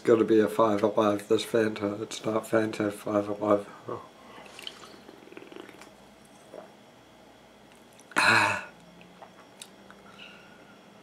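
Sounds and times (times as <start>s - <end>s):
man coughing: 8.1s - 8.8s.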